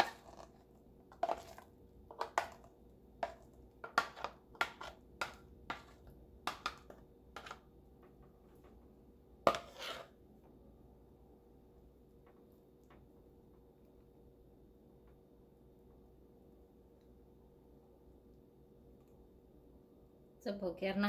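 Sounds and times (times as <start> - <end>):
metal spoon scraping plastic bowl: 0.0 - 7.6, 9.5 - 10.2
spoon knocking: 3.2 - 7.6.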